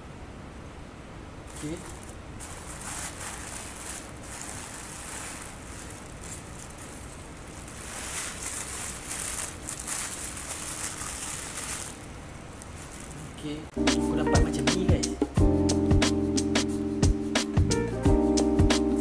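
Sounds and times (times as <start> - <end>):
plastic wrap crinkling: 1.5 - 13.7.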